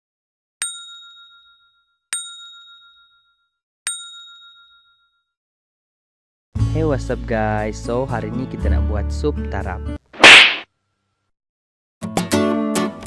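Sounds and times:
bell-like chime: 0.7 - 5.4.

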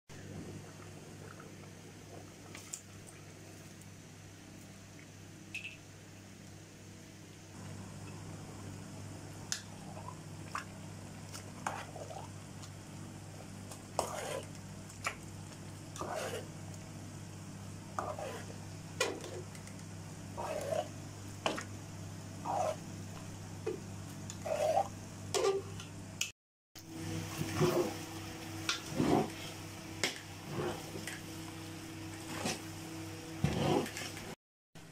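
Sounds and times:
steady low hum: 0.2 - 34.9
spoon scraping metal pot: 14.0 - 14.5, 16.0 - 16.5, 18.0 - 19.4.

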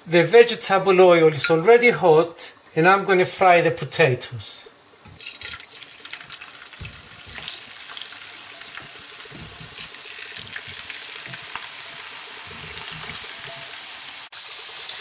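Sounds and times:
potatoes sizzling in hot oil: 5.0 - 15.0.

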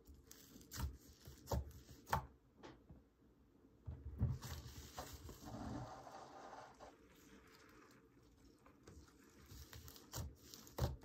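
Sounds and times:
slime squishing: 4.4 - 11.0.

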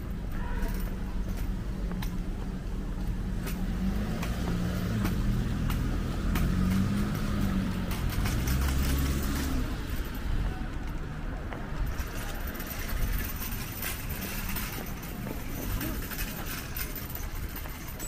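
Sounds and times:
city street noise: 0.0 - 18.0
vehicle engine humming: 0.0 - 18.0.

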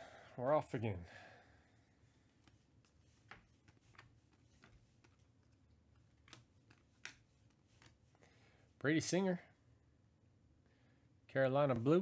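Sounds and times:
trading cards clicking: 3.3 - 8.0.

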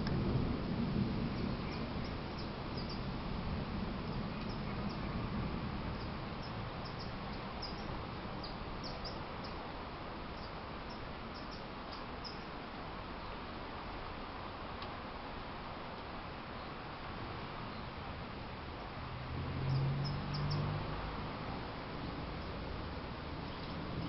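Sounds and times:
thunder rumble: 0.0 - 6.9, 19.0 - 24.0
storm hiss: 0.0 - 24.0
small birds chirping: 1.3 - 3.1, 4.0 - 5.3, 5.9 - 9.7, 10.3 - 12.5, 19.6 - 20.9, 23.3 - 24.0.

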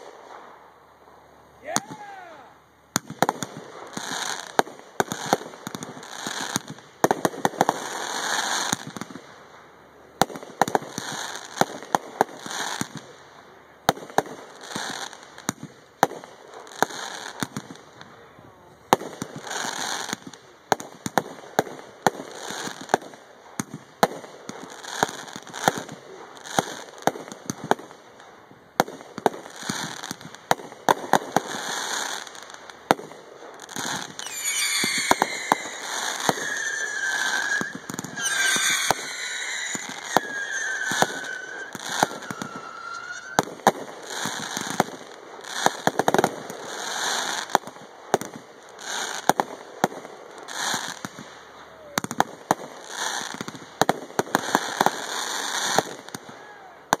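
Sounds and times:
hissing crackle: 31.4 - 44.0
firework shells bursting: 33.8 - 44.4.

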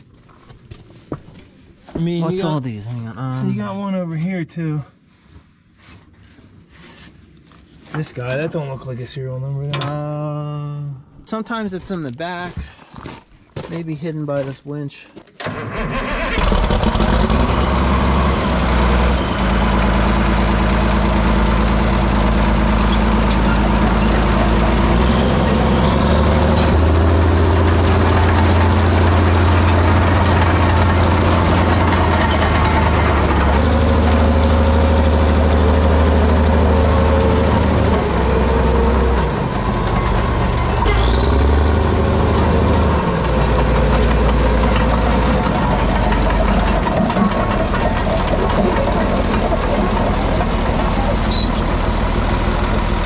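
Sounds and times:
diesel engine revving: 15.4 - 53.0
faint high squeals: 51.2 - 51.8.

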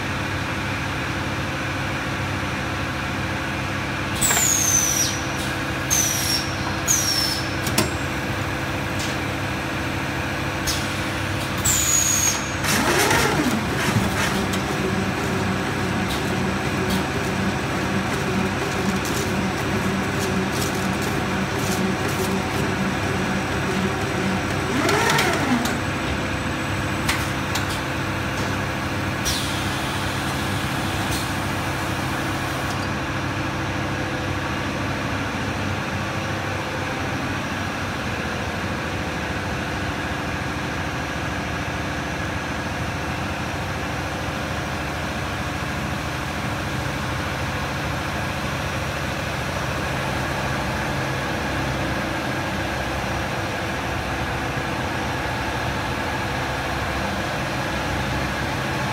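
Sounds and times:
machine squeal: 4.2 - 8.0, 11.6 - 14.7
machine line humming: 12.3 - 27.7.

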